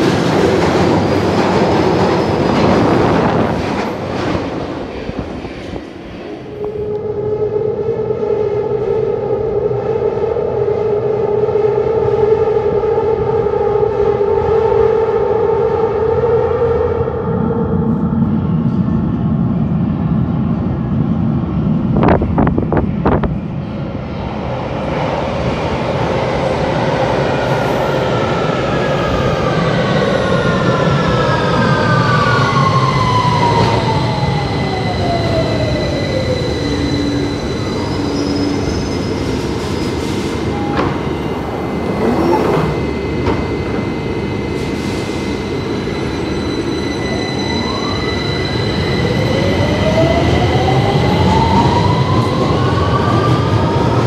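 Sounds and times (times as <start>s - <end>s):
train motor whine: 40.5s - 46.4s.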